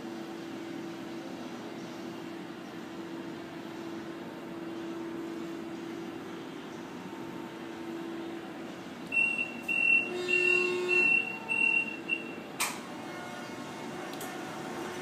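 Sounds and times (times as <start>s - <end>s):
low machine hum: 0.0s - 15.0s
high electronic beeps: 9.2s - 12.4s
sharp click: 12.6s - 12.8s.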